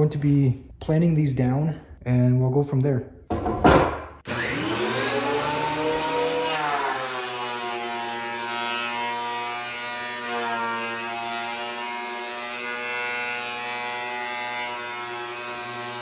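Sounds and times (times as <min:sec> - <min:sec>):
thickness planer whining: 0:04.2 - 0:16.0.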